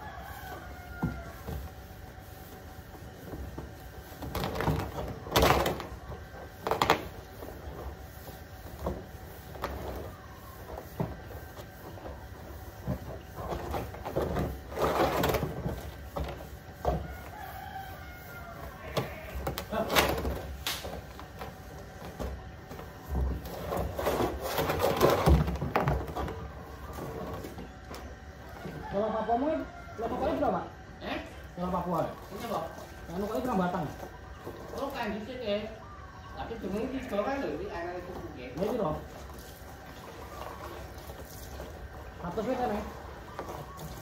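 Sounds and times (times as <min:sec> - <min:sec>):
plastic drum scraping and knocking: 0:03.3 - 0:07.8, 0:10.9 - 0:17.3, 0:18.8 - 0:28.0.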